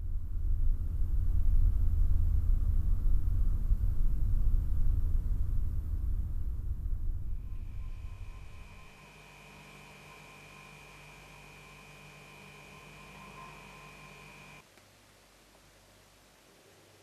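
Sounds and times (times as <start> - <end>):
deep low rumble: 0.0 - 9.0.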